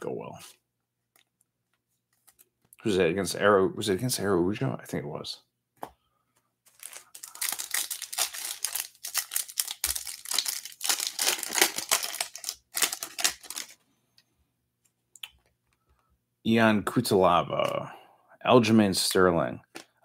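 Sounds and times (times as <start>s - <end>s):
foil wrapper tearing and crinkling: 6.7s - 13.8s.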